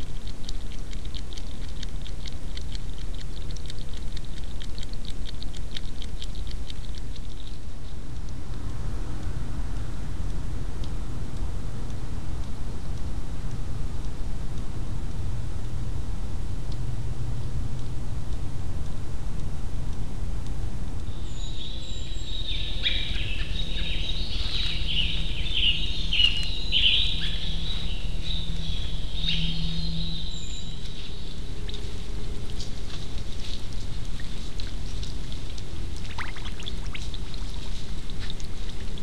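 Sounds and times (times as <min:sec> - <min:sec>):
faint clicks and rustles: 0:00.0 - 0:15.8, 0:27.2 - 0:39.0
steady background hiss: 0:00.0 - 0:39.0
bird chirping and twittering: 0:21.1 - 0:31.9.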